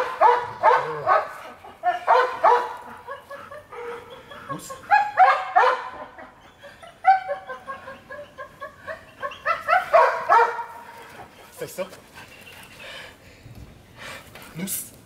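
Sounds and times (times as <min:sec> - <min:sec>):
young dog barking and yipping: 0:00.0 - 0:11.4.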